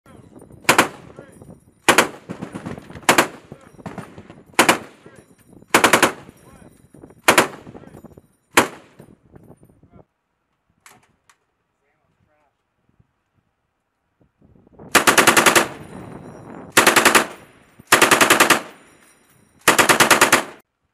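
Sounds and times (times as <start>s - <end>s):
machine gun firing bursts: 0.7s - 1.0s, 1.9s - 5.0s, 5.7s - 6.3s, 7.3s - 7.7s, 8.6s - 8.9s, 14.9s - 15.8s, 16.8s - 18.8s, 19.6s - 20.6s.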